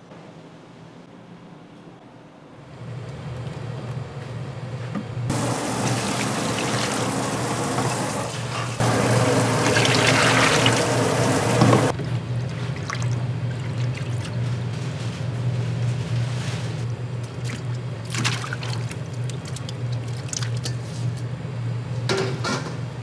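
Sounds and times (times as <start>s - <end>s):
water pouring: 5.3s - 11.9s.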